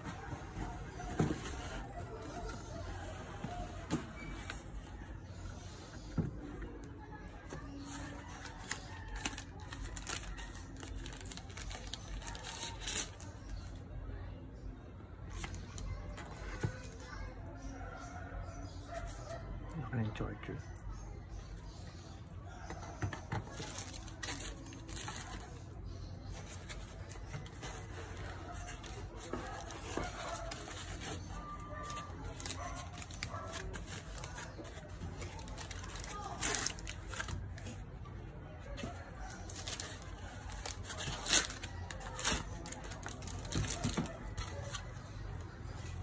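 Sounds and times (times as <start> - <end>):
packaging rustling and scraping: 0.0 - 13.8, 22.7 - 46.0
plastic wrapping crinkling: 7.5 - 13.8, 23.4 - 37.8, 38.6 - 45.9.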